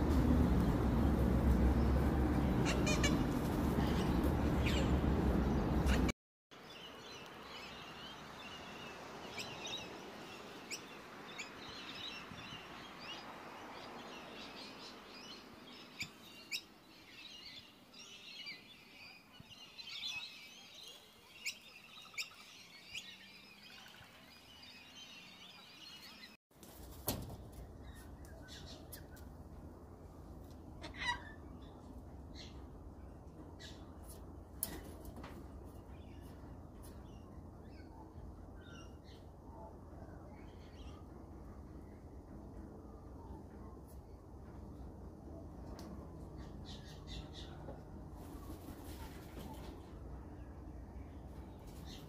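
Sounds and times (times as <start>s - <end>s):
low hum: 0.0s - 6.1s
small birds chirping: 0.1s - 26.4s.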